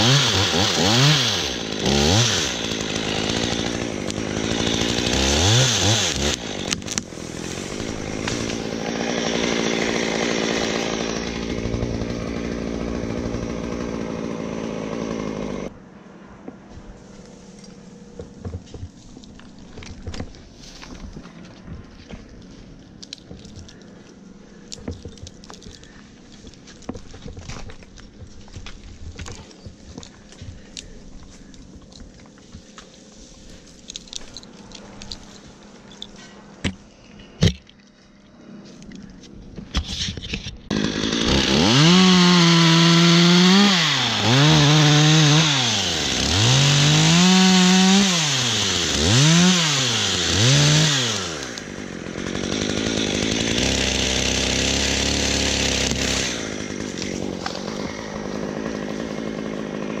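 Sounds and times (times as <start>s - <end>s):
chainsaw engine revving: 0.0s - 15.8s, 40.7s - 60.0s.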